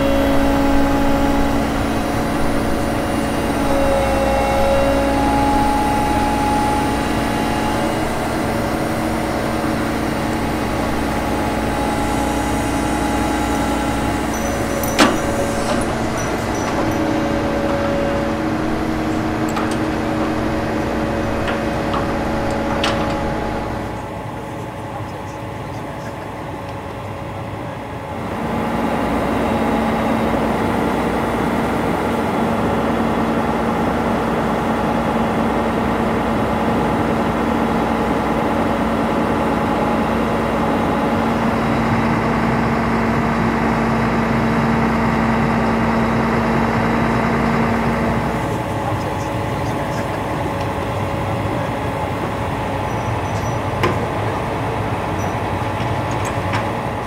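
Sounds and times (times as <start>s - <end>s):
steady low hum: 0.0s - 26.6s
diesel engine idling: 0.0s - 32.8s, 39.4s - 57.0s.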